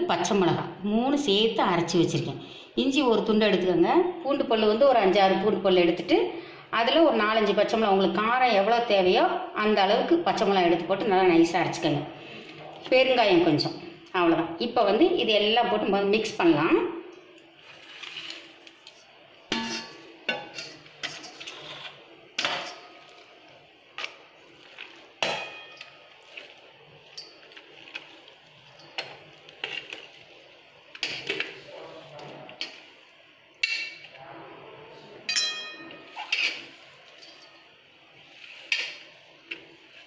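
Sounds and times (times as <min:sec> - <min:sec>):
food scraped from plate: 0:17.6 - 0:18.8, 0:19.6 - 0:23.3, 0:36.1 - 0:37.0
steel plate and bowl clinking: 0:19.5 - 0:23.1, 0:25.2 - 0:27.9, 0:35.3 - 0:37.7.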